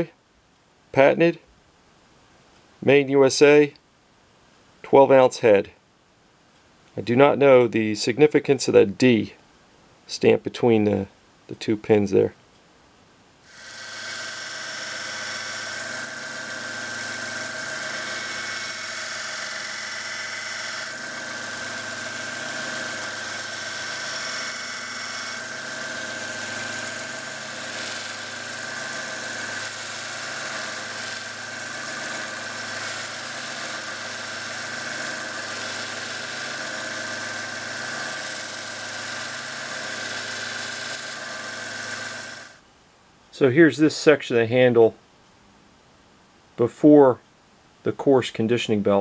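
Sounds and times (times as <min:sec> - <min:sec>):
belt sander motor humming: 0:13.5 - 0:42.6
high whine of sander: 0:13.5 - 0:42.6.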